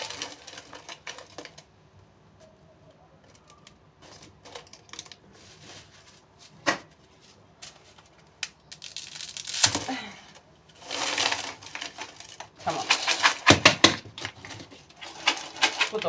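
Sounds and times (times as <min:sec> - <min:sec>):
pasta rustling: 0:00.0 - 0:01.8, 0:03.2 - 0:16.0
dry spaghetti snapping: 0:08.3 - 0:09.8.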